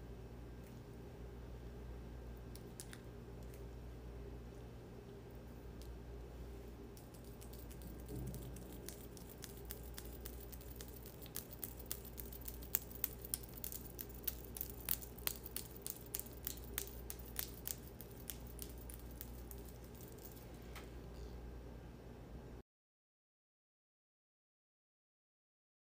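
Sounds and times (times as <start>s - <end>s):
low steady hum: 0.0s - 22.6s
hands clicking and crinkling: 2.4s - 3.7s, 6.9s - 20.9s.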